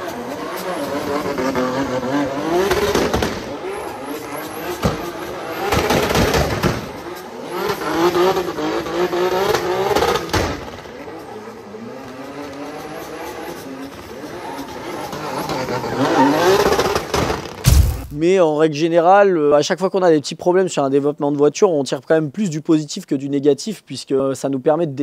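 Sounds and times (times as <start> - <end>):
car engine revving: 0.0 - 18.2
tyres squealing: 12.6 - 17.7.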